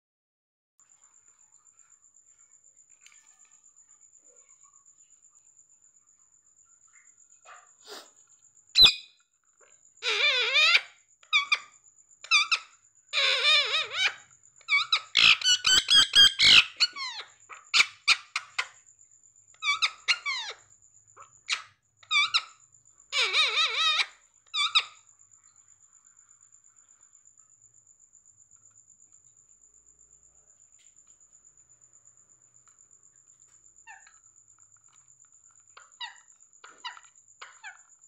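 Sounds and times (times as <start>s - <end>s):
parakeets squawking: 10.0s - 10.8s, 13.2s - 17.2s.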